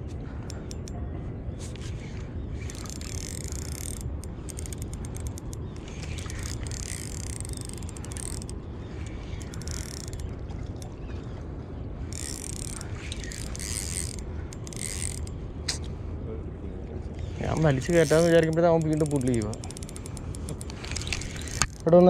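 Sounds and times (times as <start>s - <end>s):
fishing reel whirring: 2.5s - 10.9s, 12.1s - 15.4s, 17.4s - 21.9s
fishing reel clicking: 2.6s - 10.9s, 12.1s - 15.4s, 17.5s - 22.0s.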